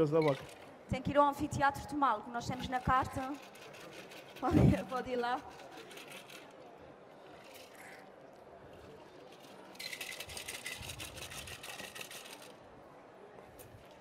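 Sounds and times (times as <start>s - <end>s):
cocktail shaker rattling: 2.6s - 6.5s, 9.3s - 12.6s.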